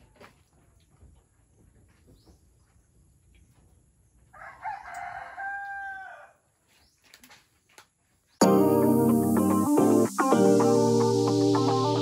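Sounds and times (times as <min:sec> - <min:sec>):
rooster crowing: 0:04.3 - 0:06.4.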